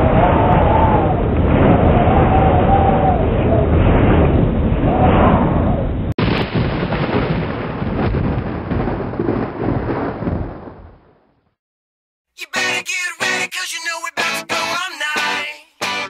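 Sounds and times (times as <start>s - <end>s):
deep thunder-like rumble: 0.0s - 11.6s.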